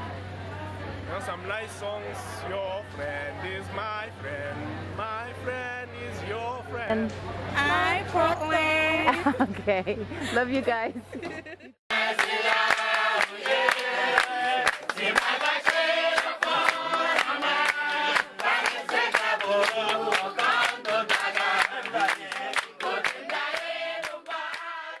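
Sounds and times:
group singing: 11.9 - 25.0
rhythmic hand-clapping: 11.9 - 25.0.

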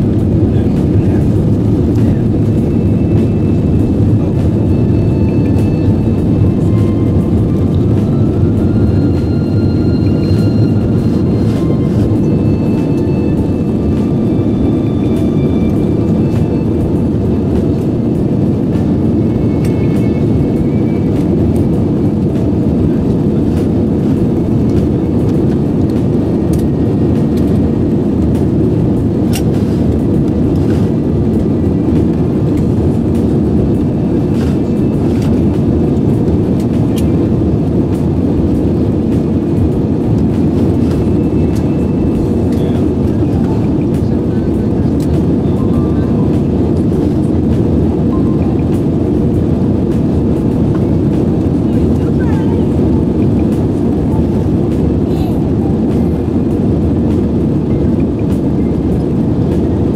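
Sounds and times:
airliner cabin engine rumble: 0.0 - 59.9.

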